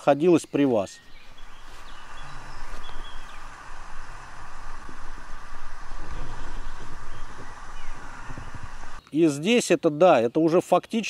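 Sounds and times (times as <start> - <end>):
river rushing: 1.4 - 9.0.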